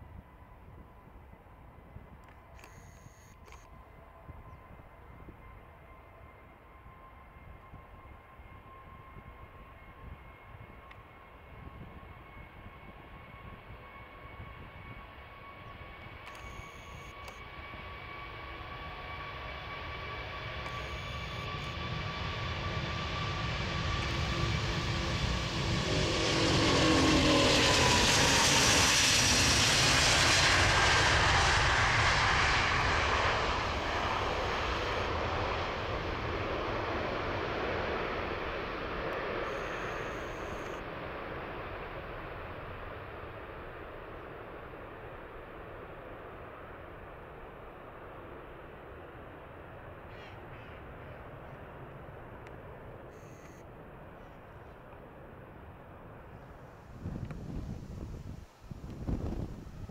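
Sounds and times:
jet engines roaring at takeoff: 3.4s - 59.9s.

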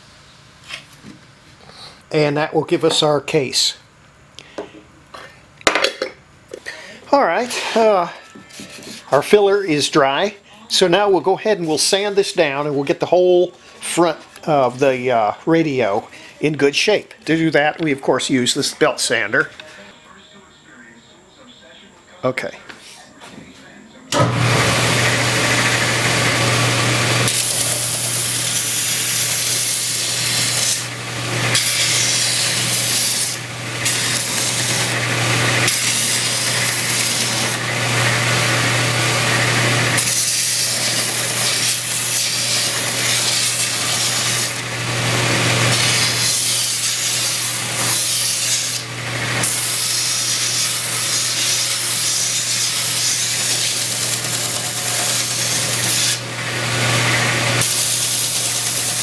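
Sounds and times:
belt sander running: 24.2s - 59.0s.

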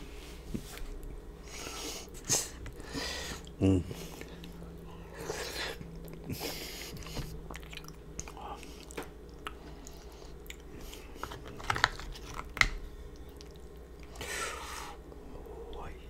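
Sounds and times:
person chewing food: 1.4s - 14.3s.

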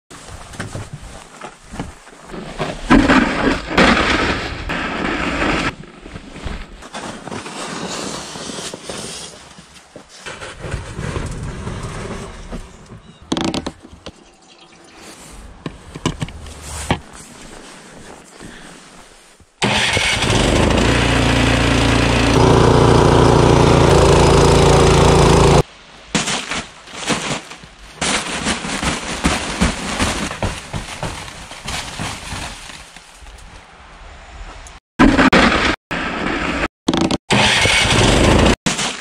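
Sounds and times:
snow shovel scraping snow: 2.3s - 12.5s, 16.5s - 25.6s.

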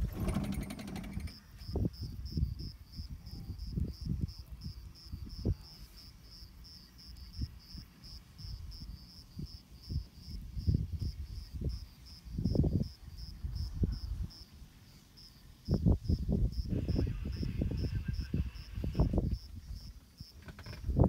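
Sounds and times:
wind buffeting microphone: 0.0s - 5.7s, 7.2s - 14.4s, 15.6s - 21.0s
insect chirping: 0.3s - 21.0s.

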